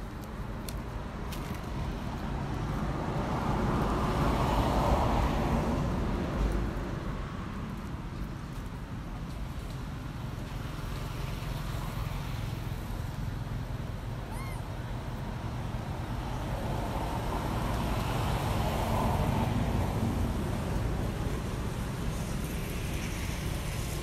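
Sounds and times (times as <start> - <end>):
traffic rumble: 0.0 - 24.0
vehicle passing: 2.2 - 6.8
short high chirp: 14.3 - 14.6.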